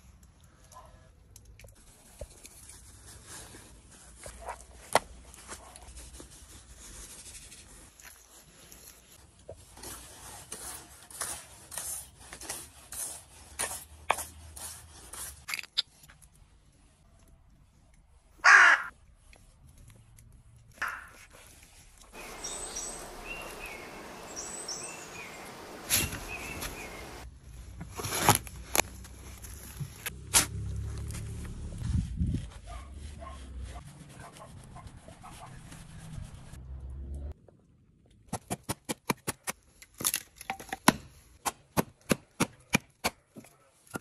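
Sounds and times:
shovel scraping wet soil: 9.7s - 15.5s, 21.8s - 27.2s.

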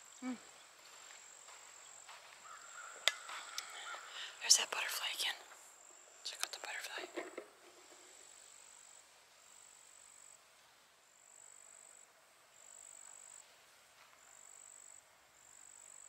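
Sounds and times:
light hiss: 0.0s - 16.0s.

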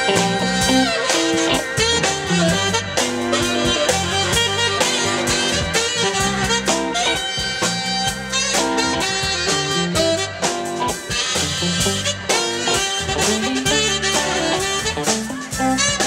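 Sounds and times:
bass line: 0.0s - 16.0s
live band playing upbeat groove: 0.0s - 16.0s
saxophone lead: 0.0s - 16.0s.

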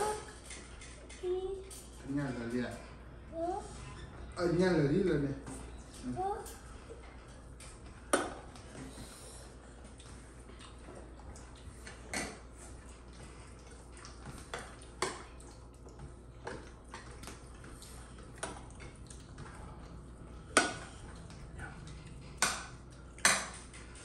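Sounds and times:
low steady hum: 0.0s - 24.0s
dishes and utensils clinking: 20.3s - 24.0s.

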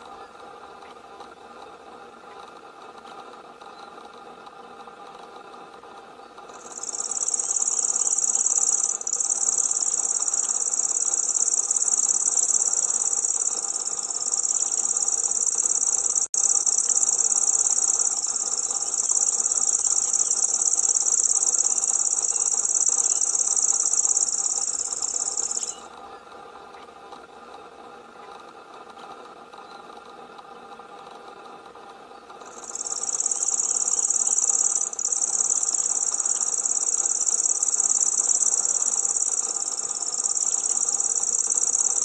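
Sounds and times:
bird reeling trill: 6.5s - 25.9s, 32.4s - 42.0s.

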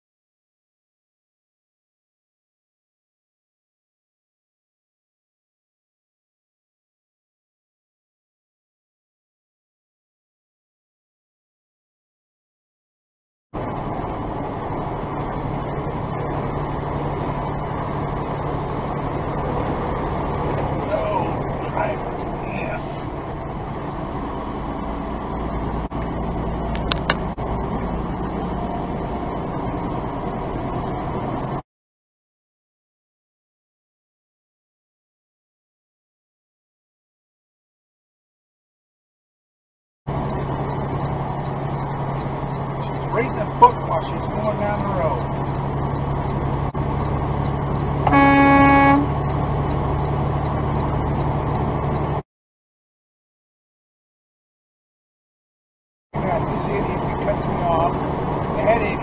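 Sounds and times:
truck engine and road noise: 13.6s - 31.6s, 40.1s - 52.2s, 56.1s - 59.0s
truck air horn blast: 48.0s - 49.2s.

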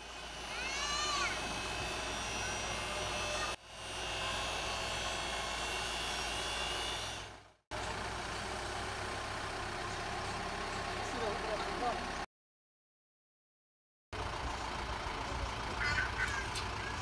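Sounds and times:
truck engine running: 0.0s - 12.3s, 14.2s - 17.0s.

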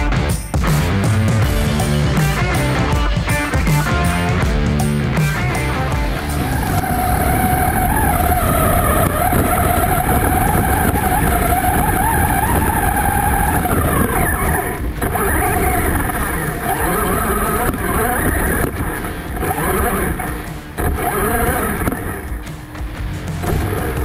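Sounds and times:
rc car motor whining: 5.3s - 24.0s
tyre running noise: 5.8s - 24.0s.

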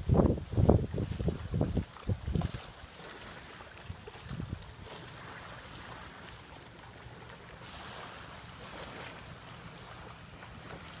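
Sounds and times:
wind buffeting microphone: 0.0s - 2.8s, 3.8s - 5.0s
small waves lapping on sand: 0.0s - 11.0s.

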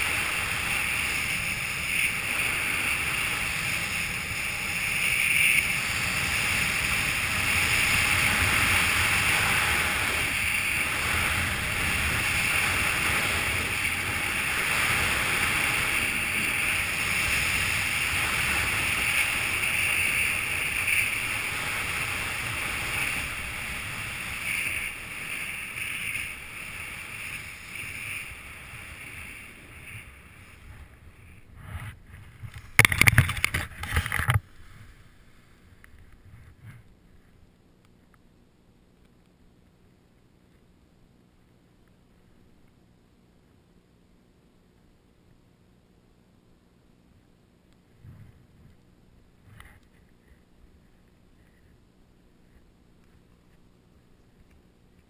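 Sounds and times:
skis hissing over snow: 0.0s - 32.7s
wind buffets: 0.0s - 34.9s
wind rushing on microphone: 0.0s - 34.9s.

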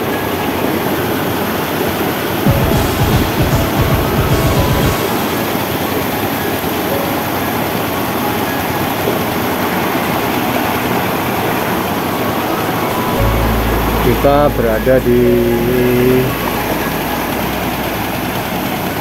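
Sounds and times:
low thumps: 2.5s - 5.9s, 13.1s - 17.9s.

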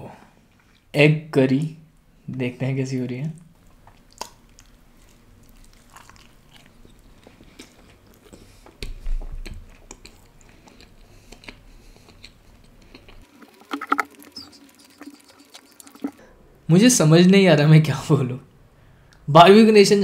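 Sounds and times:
wet chewing and mouth clicks: 3.6s - 16.2s.

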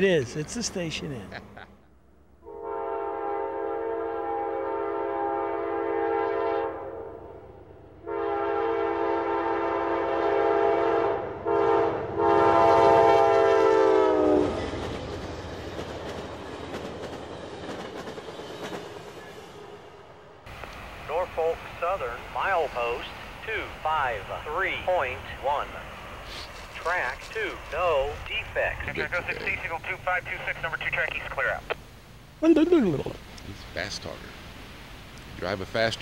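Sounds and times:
train cars rumbling over rails: 0.0s - 31.4s
locomotive air horn blasts: 2.4s - 7.1s, 8.0s - 14.6s.

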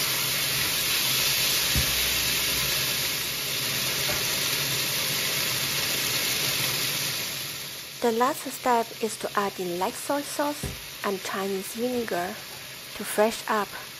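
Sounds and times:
food sizzling in a wok: 0.0s - 13.9s.

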